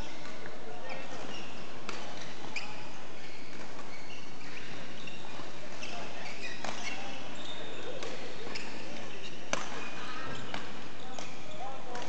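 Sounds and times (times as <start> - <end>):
shoes squeaking on floor: 0.0 - 12.0
rackets hitting shuttlecock: 3.5 - 7.2, 7.9 - 12.0.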